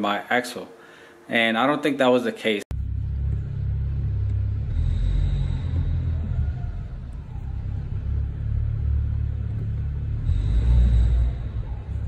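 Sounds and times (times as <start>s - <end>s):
car low rumble: 2.7s - 12.0s.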